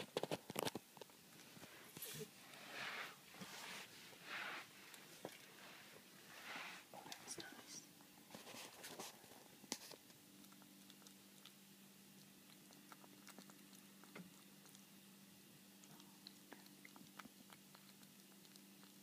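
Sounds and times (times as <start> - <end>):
low steady hum: 0.0 - 19.0
kitten chewing clicks: 9.7 - 15.0, 15.6 - 19.0.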